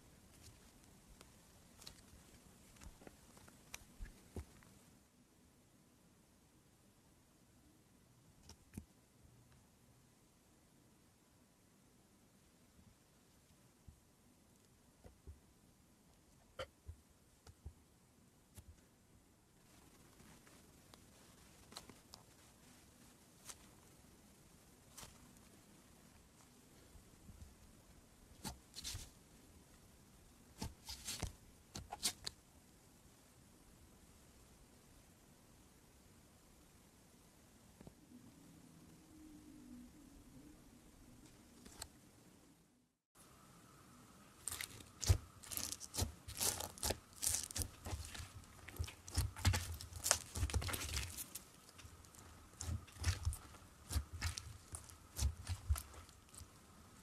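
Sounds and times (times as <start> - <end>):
slime crackling and popping: 44.4 - 56.5.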